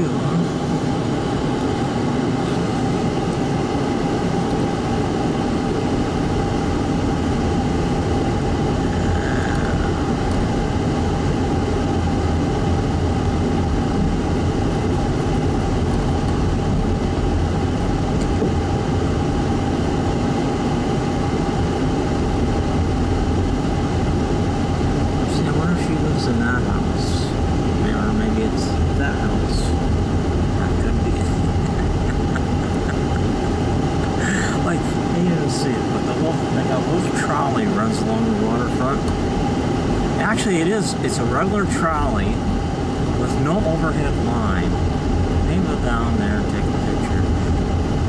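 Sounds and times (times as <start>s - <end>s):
car engine and road noise: 4.4s - 35.5s.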